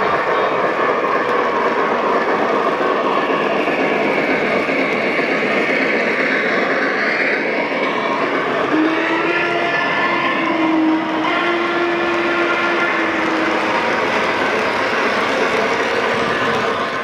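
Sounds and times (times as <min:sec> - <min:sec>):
model train wheels rumbling: 0:00.0 - 0:17.0.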